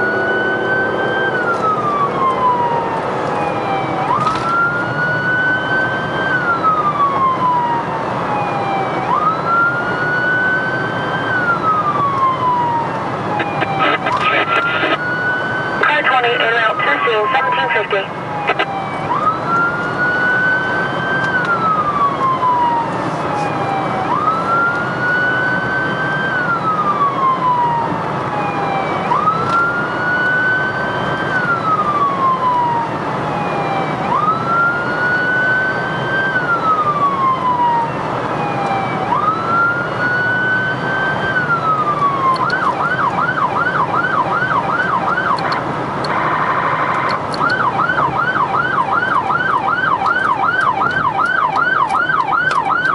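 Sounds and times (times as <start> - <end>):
siren horn blast: 0.0 - 4.8
emergency siren wailing and yelping: 0.0 - 52.9
road noise: 0.0 - 52.9.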